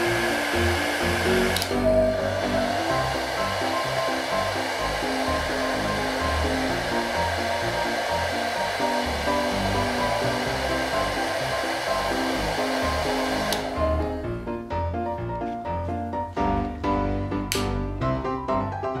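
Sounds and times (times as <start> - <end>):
hair dryer blowing: 0.0 - 14.3
background music: 0.0 - 19.0.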